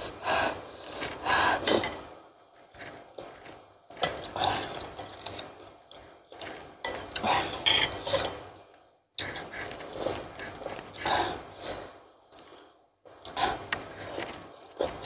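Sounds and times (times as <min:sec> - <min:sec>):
person slurping and chewing: 0:02.8 - 0:08.4, 0:09.2 - 0:12.6, 0:13.2 - 0:15.0.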